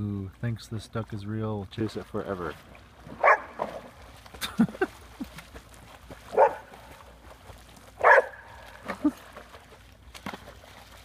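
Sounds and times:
dog barking: 3.2s - 3.6s, 6.3s - 6.7s, 8.0s - 8.5s.

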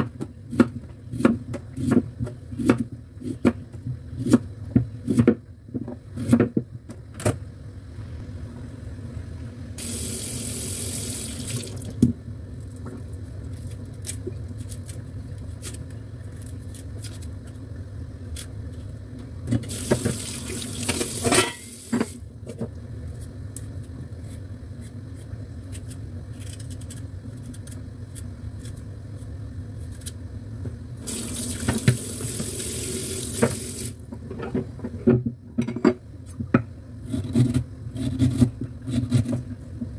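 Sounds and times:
knife scraping ginger: 37.0s - 39.4s.

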